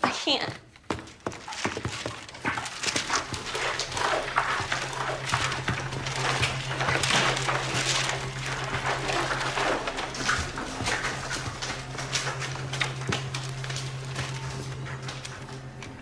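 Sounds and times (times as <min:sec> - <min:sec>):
low steady hum: 0:02.3 - 0:16.0.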